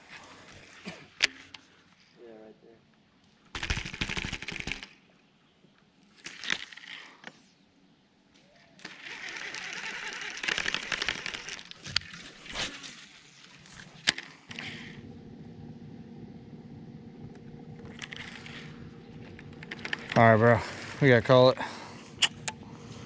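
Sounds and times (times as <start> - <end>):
fishing reel spool clicking: 8.8 - 12.2, 17.8 - 18.7, 19.3 - 21.0
boat motor humming: 8.9 - 11.8, 14.1 - 23.0.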